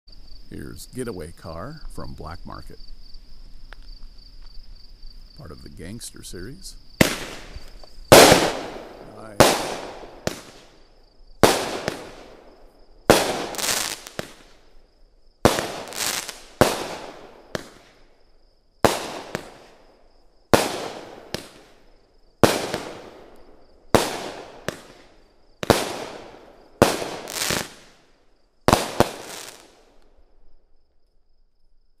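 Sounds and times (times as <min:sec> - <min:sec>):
firework shots with crackling tails: 0:07.0 - 0:18.2, 0:18.8 - 0:30.2.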